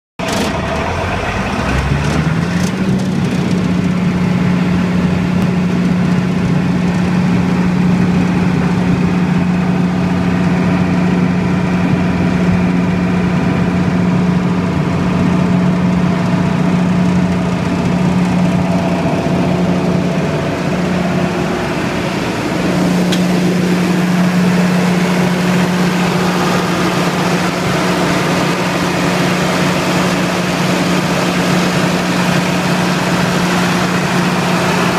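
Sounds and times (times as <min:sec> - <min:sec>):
diesel generator engine running: 0:00.2 - 0:34.9.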